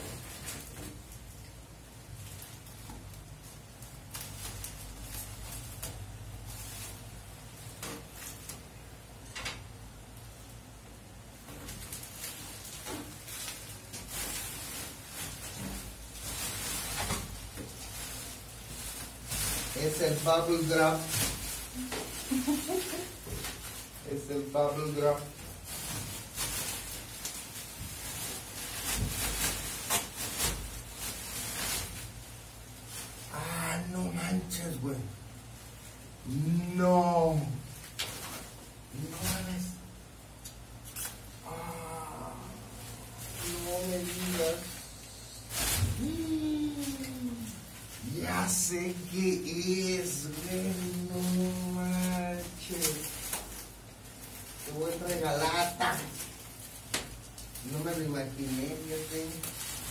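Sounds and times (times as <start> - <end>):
bubble wrap crinkling: 0.0 - 59.9.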